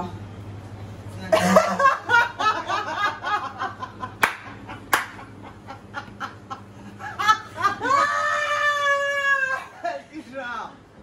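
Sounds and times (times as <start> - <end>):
person laughing heartily: 1.3 - 8.3.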